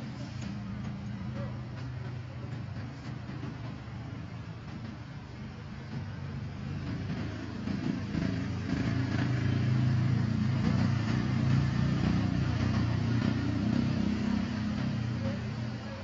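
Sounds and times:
vehicle engine passing: 5.9s - 16.0s.

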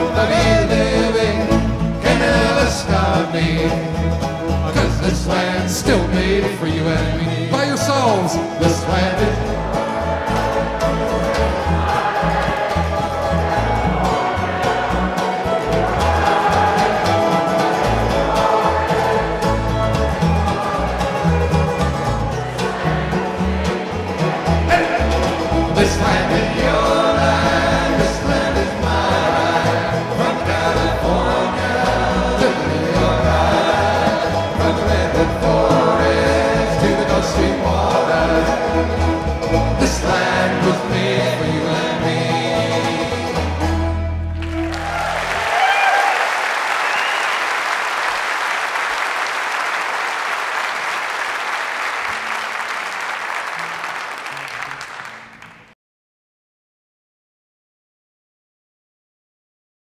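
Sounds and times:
folk band with group singing: 0.0s - 44.2s
audience applause: 9.7s - 26.5s, 44.4s - 55.7s.

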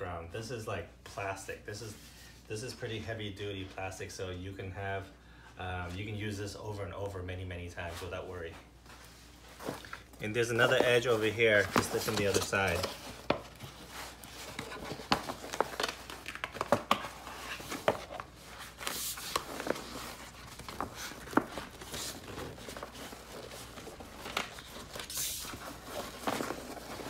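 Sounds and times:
plastic sheet crinkling: 9.8s - 27.0s.

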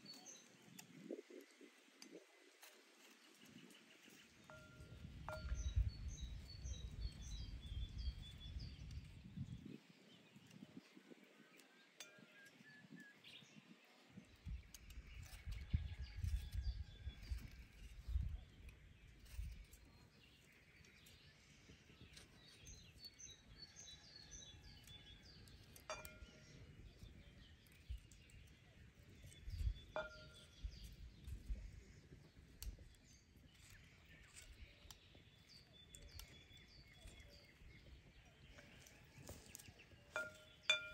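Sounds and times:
birds chirping: 25.5s - 40.9s.

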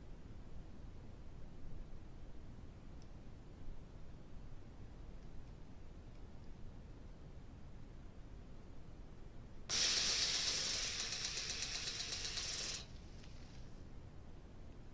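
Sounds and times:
sprinkler ticking: 9.7s - 12.9s
sprinkler hissing water jet: 9.7s - 13.6s.

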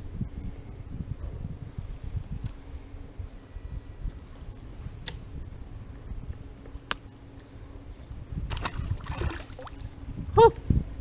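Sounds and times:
water splash: 8.5s - 9.9s.

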